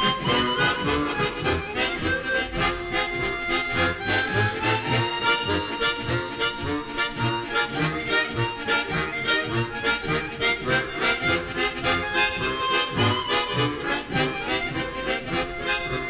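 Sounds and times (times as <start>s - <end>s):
harmonicas playing folk dance tune: 0.0s - 16.0s.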